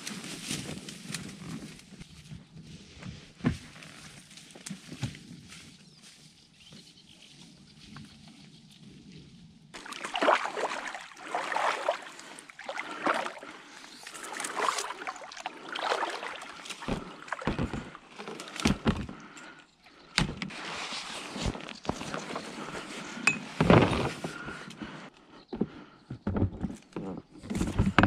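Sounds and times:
oars splashing through water: 9.8s - 24.7s.

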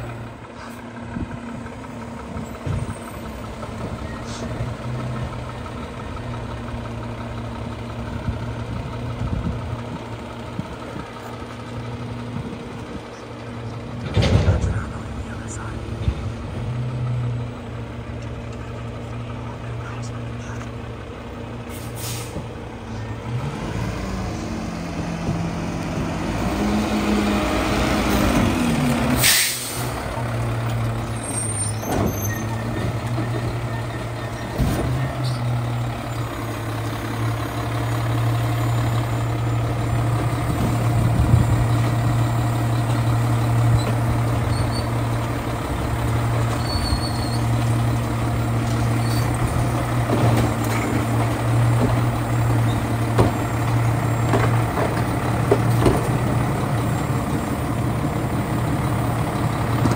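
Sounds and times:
garbage truck engine running: 0.0s - 59.9s
air brakes hissing: 21.7s - 22.5s, 29.2s - 30.0s.

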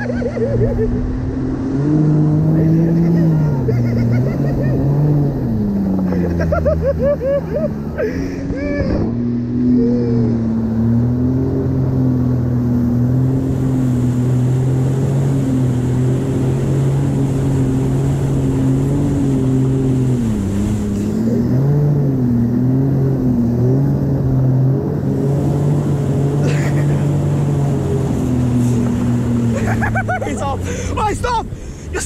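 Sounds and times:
jet ski engine running: 0.0s - 32.0s
water rushing and spray: 0.0s - 32.0s.

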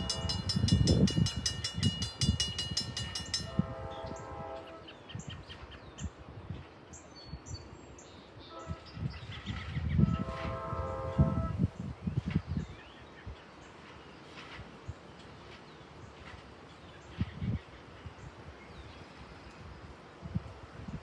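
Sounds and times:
distant train horn: 0.0s - 1.2s, 3.2s - 5.0s, 8.4s - 9.2s, 9.9s - 11.8s
crossing bell ringing rapidly: 0.0s - 3.7s.

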